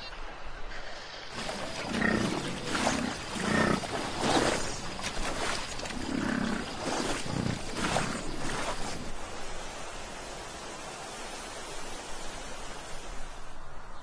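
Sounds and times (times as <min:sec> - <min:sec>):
water splashing: 0:01.3 - 0:13.6
bison bellowing: 0:01.4 - 0:04.7, 0:05.9 - 0:08.2.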